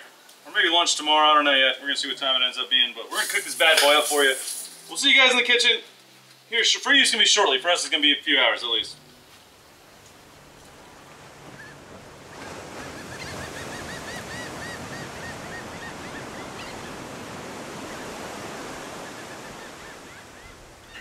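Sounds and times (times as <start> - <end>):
surf washing on beach: 3.1 - 5.5, 7.2 - 21.0.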